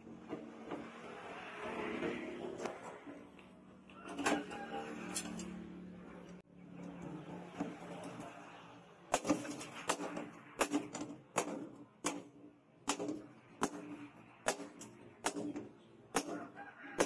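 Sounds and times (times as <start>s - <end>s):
hammer striking hot steel on anvil: 9.1s - 17.0s.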